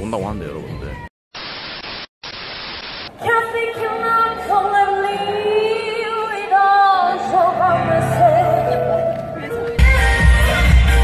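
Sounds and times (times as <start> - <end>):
static hiss: 1.3 - 3.1
woman singing into a microphone: 3.2 - 9.0.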